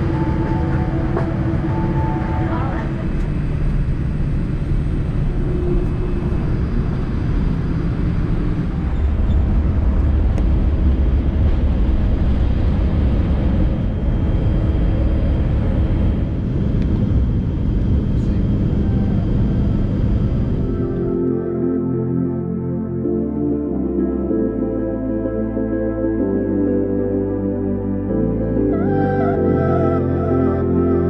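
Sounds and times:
jet engine and cabin roar: 0:00.0 - 0:23.6.

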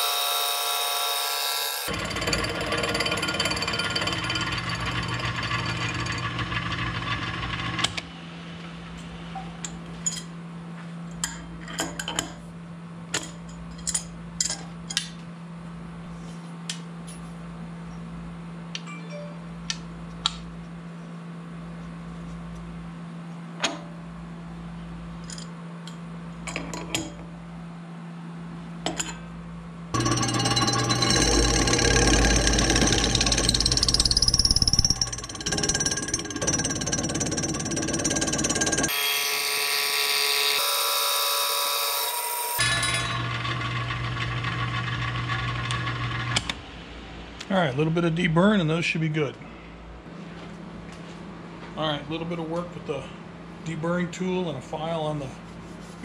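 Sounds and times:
end mill cutting metal: 0:00.0 - 0:08.0, 0:30.0 - 0:46.4
machine humming: 0:29.9 - 0:46.4.

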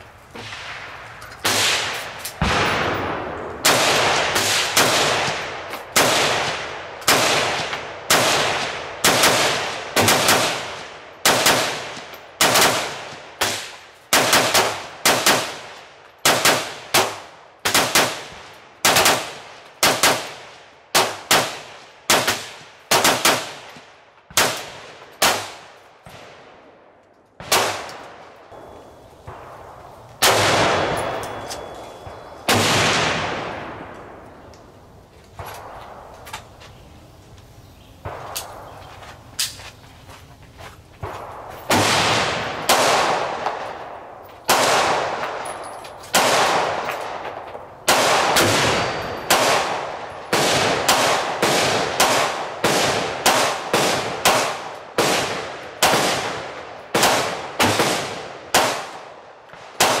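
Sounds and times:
gunshots echoing: 0:00.0 - 0:26.8, 0:27.4 - 0:34.5, 0:38.0 - 0:38.8, 0:41.0 - 1:00.0.

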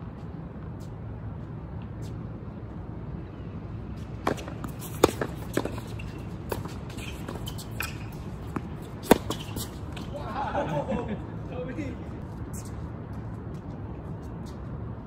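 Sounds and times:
tennis ball struck by rackets: 0:04.2 - 0:10.1
tennis ball bouncing on hard court: 0:04.2 - 0:10.2.

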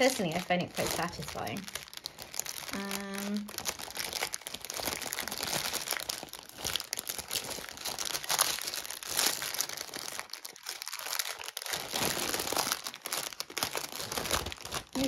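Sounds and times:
plastic bags crinkling: 0:00.0 - 0:15.0.

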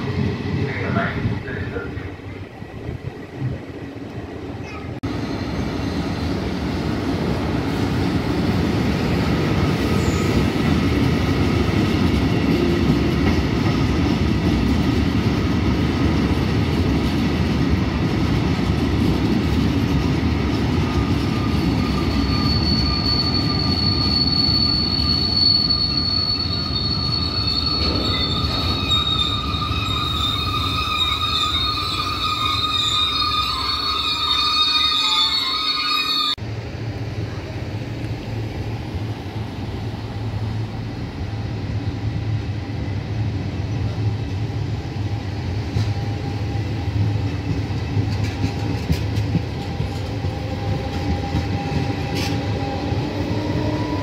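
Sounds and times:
train wheels rumbling on rails: 0:00.0 - 0:54.0
metallic wheel squeal: 0:21.6 - 0:36.4.

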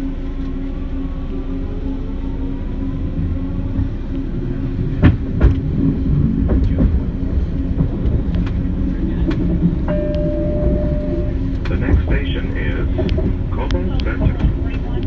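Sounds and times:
train car rumbling on steel track: 0:00.0 - 0:15.0
faint rising whine: 0:09.9 - 0:11.6.

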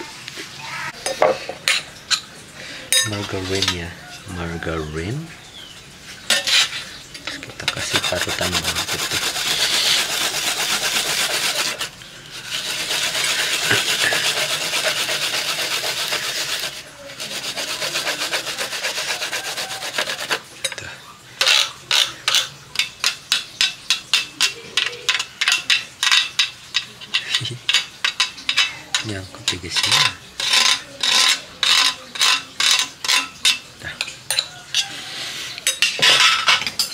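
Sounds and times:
garlic rasping on metal grater: 0:07.8 - 0:20.5, 0:27.2 - 0:33.6.

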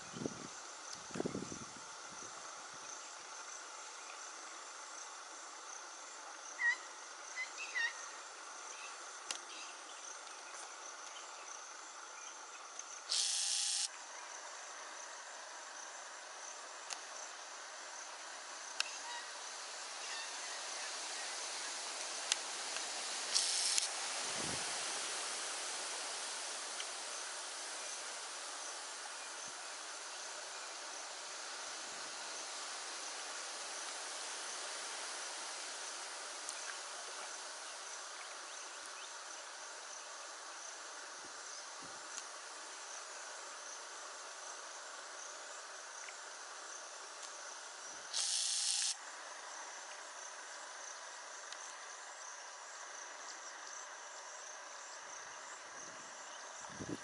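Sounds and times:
insect chirring: 0:00.2 - 0:14.4, 0:15.8 - 0:40.9, 0:41.5 - 0:53.8
bursts of buzzing hiss: 0:12.8 - 0:13.9, 0:15.6 - 0:49.2.

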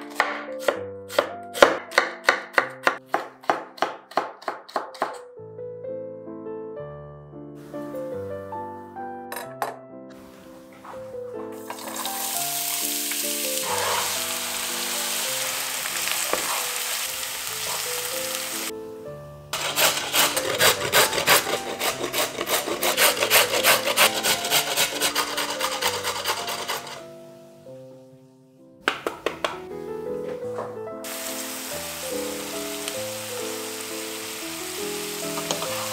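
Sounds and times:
cabbage sizzling in hot oil: 0:11.6 - 0:18.7, 0:19.6 - 0:22.0, 0:31.0 - 0:35.9
carrot rasping on metal grater: 0:19.6 - 0:27.0.

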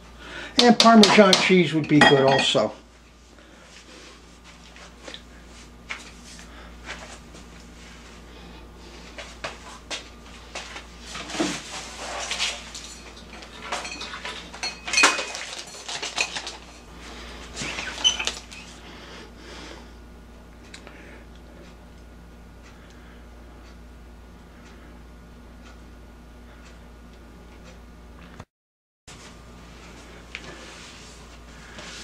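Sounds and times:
faint steady hum: 0:00.0 - 0:28.4, 0:29.1 - 0:32.0
cupboard doors and dishes clattering: 0:11.2 - 0:16.8
kitchen clicks and knocks: 0:12.8 - 0:16.6.

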